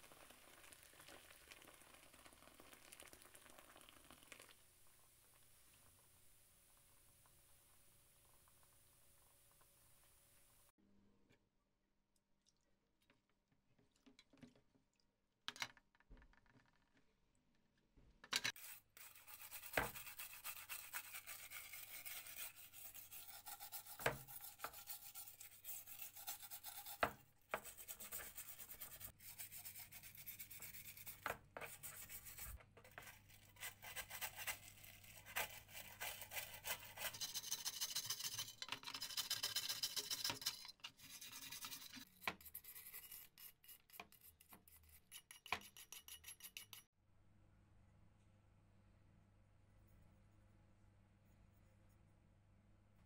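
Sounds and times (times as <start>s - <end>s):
brush scrubbing metal: 18.6s - 46.8s.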